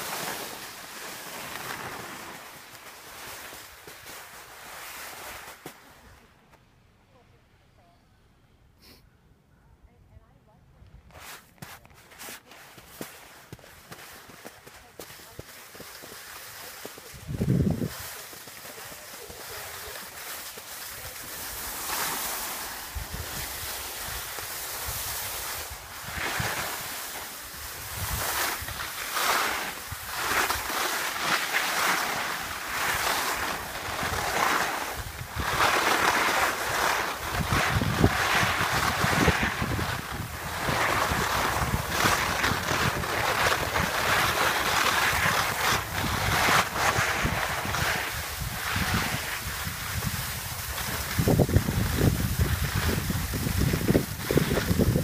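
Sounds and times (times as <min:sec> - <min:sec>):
skis scraping over icy snow: 0:00.0 - 0:06.2, 0:11.1 - 0:55.0
wind rushing over microphone: 0:17.1 - 0:18.0, 0:20.9 - 0:29.0, 0:36.5 - 0:55.0.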